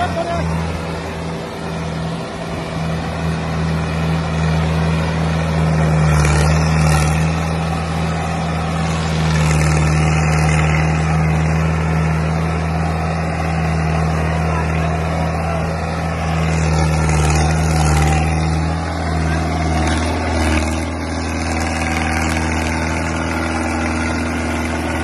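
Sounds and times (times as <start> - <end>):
tractor diesel engine under load: 0.0 - 25.0.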